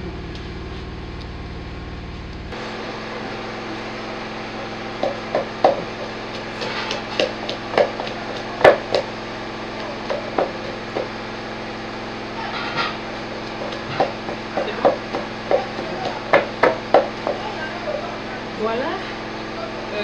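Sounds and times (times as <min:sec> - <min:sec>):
pestle pounding in wooden mortar: 0:04.6 - 0:11.3, 0:12.7 - 0:17.6.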